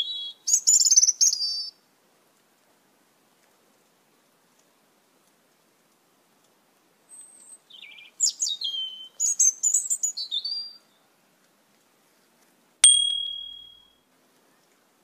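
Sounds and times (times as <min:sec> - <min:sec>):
starlings chirping and whistling: 0:07.4 - 0:10.7
bell-like ding: 0:12.8 - 0:13.9.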